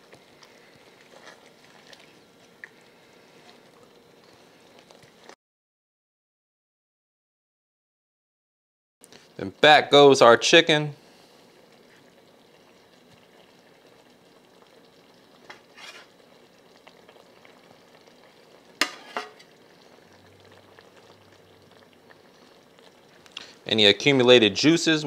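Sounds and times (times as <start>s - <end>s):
sauce simmering: 0.0s - 5.4s, 9.0s - 25.0s.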